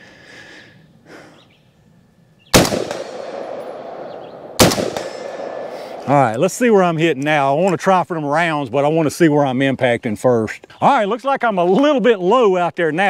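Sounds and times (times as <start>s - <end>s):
rifle shots: 2.5s - 6.6s
rolling echo: 2.5s - 7.8s.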